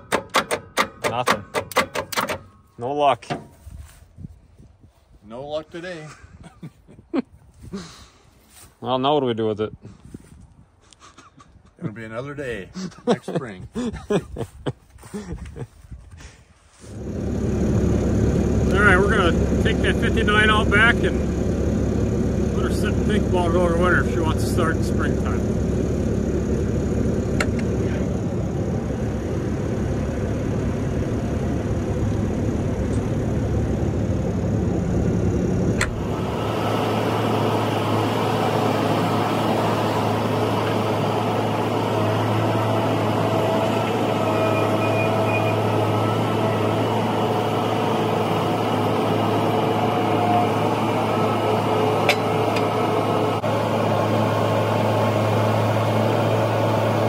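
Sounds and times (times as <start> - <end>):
vehicle engine droning: 16.8 - 57.0.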